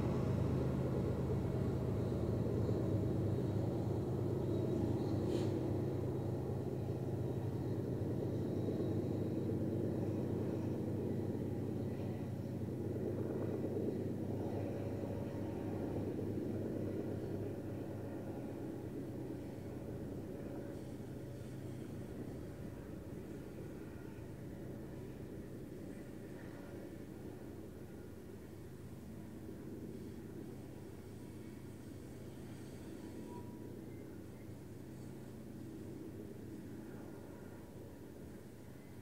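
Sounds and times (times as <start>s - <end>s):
train wheels rumbling on rails: 0.0s - 7.8s.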